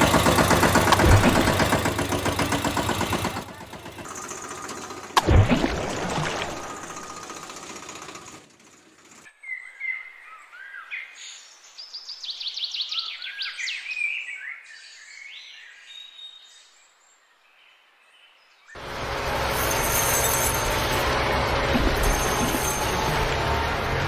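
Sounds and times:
dense engine-like noise: 0.0 - 9.3, 18.8 - 24.0
small birds chirping and singing: 9.3 - 18.8.

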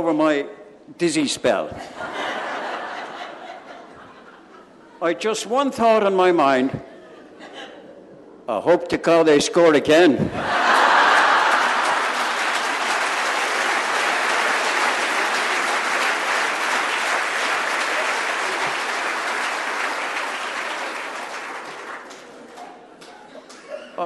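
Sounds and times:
congregation applauding: 10.5 - 23.3.

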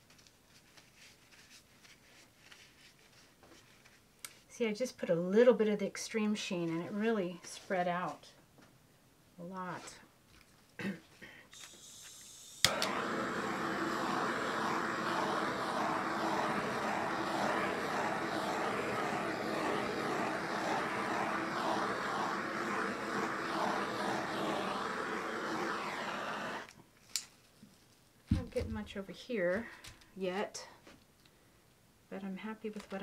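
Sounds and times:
heat gun fan rushing air: 11.6 - 26.7
heat gun switch click: 12.6 - 13.0.

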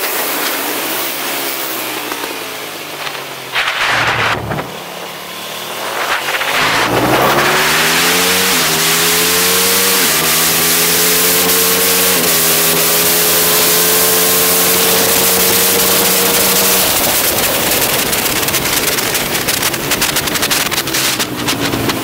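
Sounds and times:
motorcycle engine accelerating: 0.0 - 22.0
wind rush on microphone: 3.5 - 5.0.

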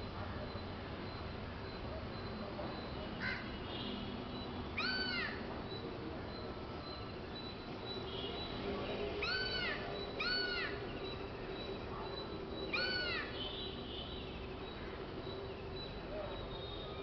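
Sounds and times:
crow cawing: 3.2 - 3.4.

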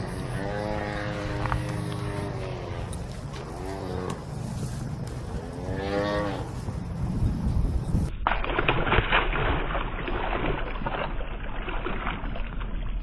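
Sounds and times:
fish splashing at water surface: 8.2 - 13.0.

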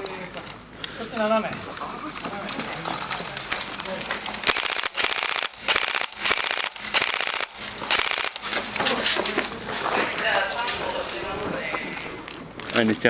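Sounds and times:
airsoft rifle firing bursts: 4.4 - 8.6.

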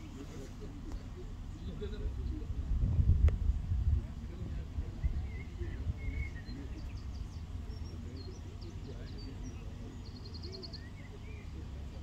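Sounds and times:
songbirds chirping: 0.0 - 12.0
wind rumble on microphone: 1.8 - 8.0.

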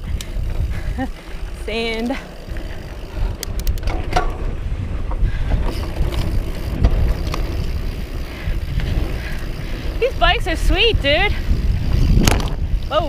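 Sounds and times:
bike tyres rolling on dirt: 0.0 - 13.0
wind buffeting microphone: 0.0 - 13.0
sharp clicks: 3.2 - 4.0.

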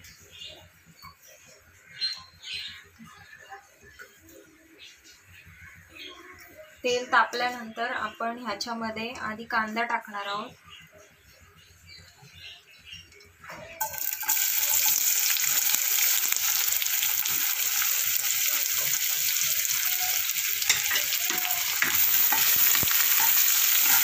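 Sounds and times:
onions sizzling in hot oil: 13.8 - 24.0.

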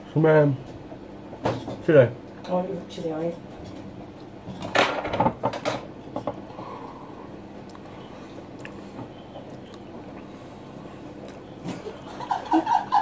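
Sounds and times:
faint steady hum: 0.0 - 13.0
knocks and rustling of tableware: 1.3 - 2.1, 3.0 - 6.4.

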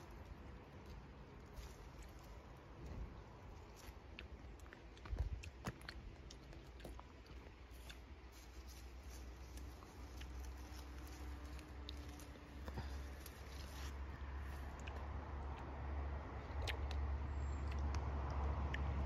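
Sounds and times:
leaves and stems rustling: 0.0 - 15.1.

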